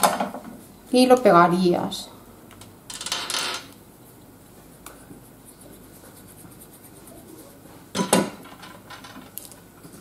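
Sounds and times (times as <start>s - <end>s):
glue stick rubbing on paper: 4.6s - 7.6s.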